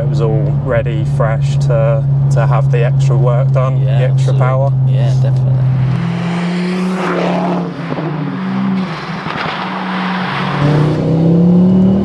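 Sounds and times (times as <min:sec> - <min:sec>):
car engine and exhaust accelerating: 0:00.0 - 0:12.0
exhaust crackling: 0:00.0 - 0:12.0.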